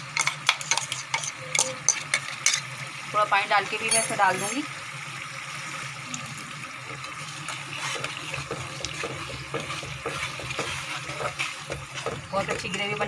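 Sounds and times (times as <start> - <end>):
metal ladle scraping a pan: 0.0 - 2.8, 7.5 - 13.0
paste sizzling in a pan: 0.0 - 13.0.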